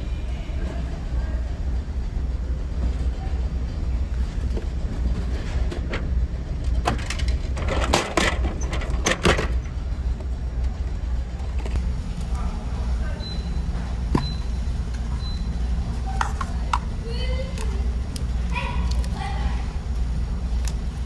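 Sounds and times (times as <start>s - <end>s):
vending machine flap clacking: 5.2s - 9.8s.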